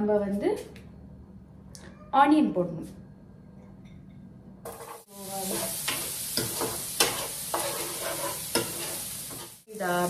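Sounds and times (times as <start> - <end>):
onion sizzling in frying pan: 4.6 - 10.0
spoon scraping a pan: 4.7 - 9.7.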